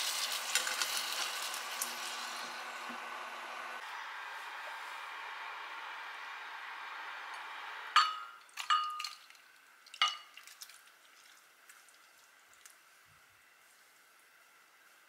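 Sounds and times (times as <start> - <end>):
saucepan clinking ceramic bowl: 8.0 - 9.2.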